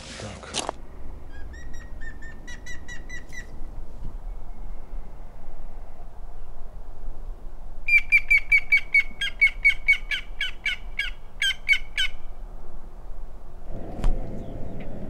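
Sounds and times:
bird harsh rapid calls: 1.3s - 3.6s.

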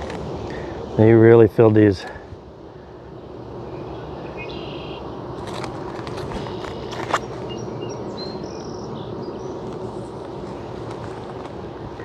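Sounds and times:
honey bees humming: 0.0s - 12.0s
short high bird chirps: 4.4s - 5.0s.

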